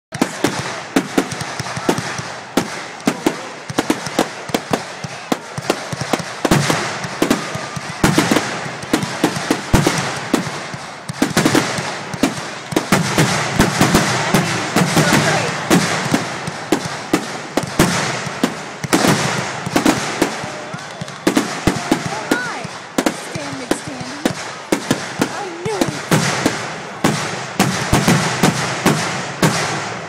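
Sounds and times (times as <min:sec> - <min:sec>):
fireworks bursting with sharp bangs: 0:00.1 - 0:30.0.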